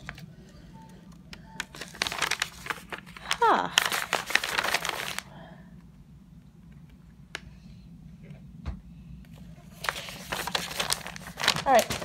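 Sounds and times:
low steady hum: 0.0 - 12.0
paper rustling: 1.6 - 5.3, 9.7 - 12.0.

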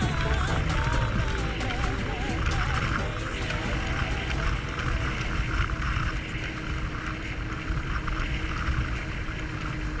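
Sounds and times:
jet ski engine running: 0.0 - 10.0.

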